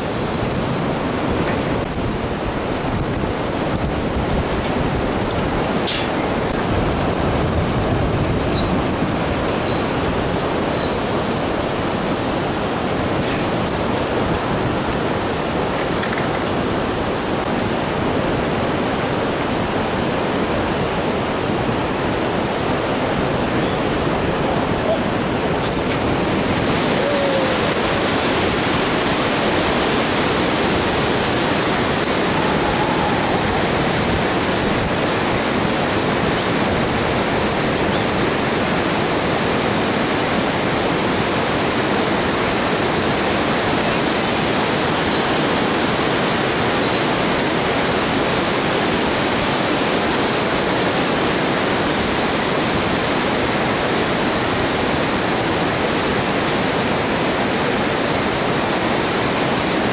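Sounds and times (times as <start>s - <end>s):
river rapids rushing: 0.0s - 59.9s.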